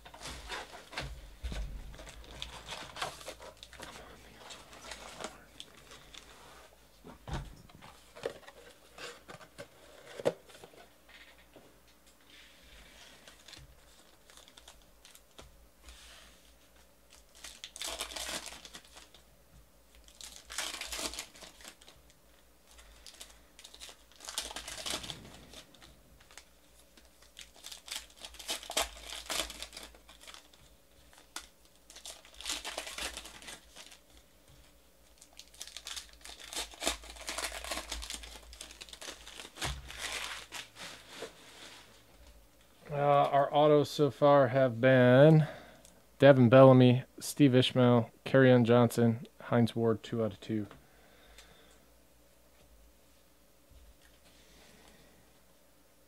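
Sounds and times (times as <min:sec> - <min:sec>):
wrappers tearing and crinkling: 0:01.9 - 0:06.3, 0:13.0 - 0:15.4, 0:17.1 - 0:19.2, 0:19.9 - 0:42.4.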